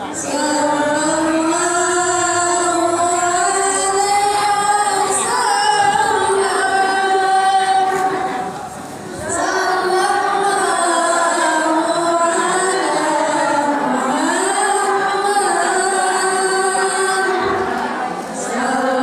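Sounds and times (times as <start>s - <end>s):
woman singing long held notes: 0.1s - 8.5s, 9.2s - 19.0s.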